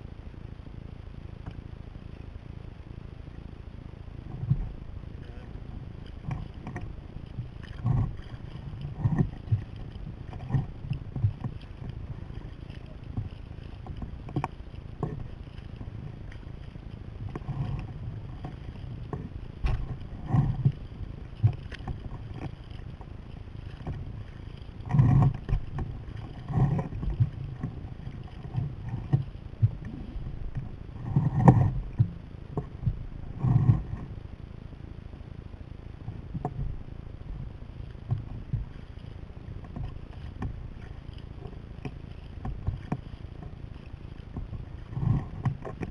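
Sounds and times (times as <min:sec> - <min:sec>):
water washing along hull: 0:00.0 - 0:45.9
wind buffeting microphone: 0:04.1 - 0:34.4, 0:36.0 - 0:45.9.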